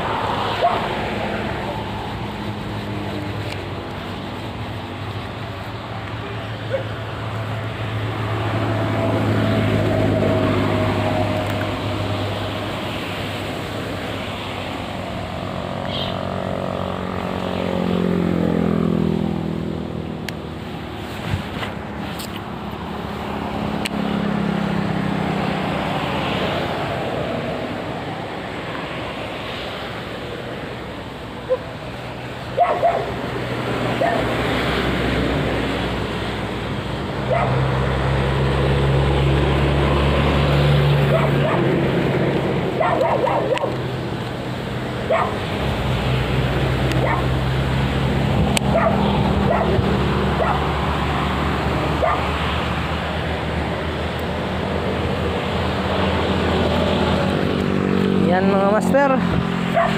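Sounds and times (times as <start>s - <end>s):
dog barking: 0.6s - 0.9s, 6.7s - 6.9s, 31.5s - 31.7s, 32.6s - 33.2s, 34.0s - 34.3s, 37.3s - 37.6s, 41.1s - 41.7s, 42.8s - 43.8s, 45.1s - 45.4s, 47.0s - 47.3s, 48.7s - 49.8s, 50.4s - 50.6s, 52.0s - 52.3s.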